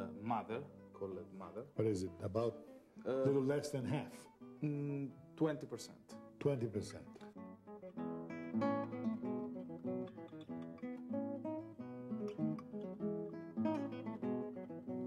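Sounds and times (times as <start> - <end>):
acoustic guitar picking melody: 0.0 - 15.0.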